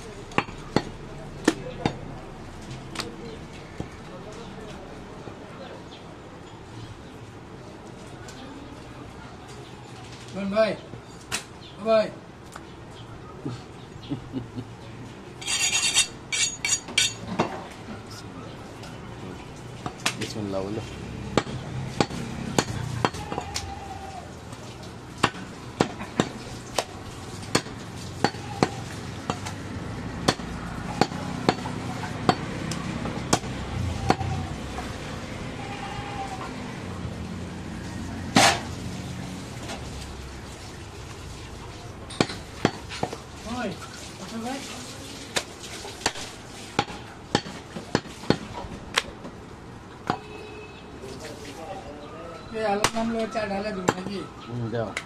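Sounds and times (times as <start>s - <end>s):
cleaver chopping meat on wood: 0.3s - 2.0s, 21.3s - 23.6s, 25.2s - 26.9s, 27.5s - 29.6s, 30.2s - 34.3s, 42.2s - 43.2s, 46.0s - 49.1s.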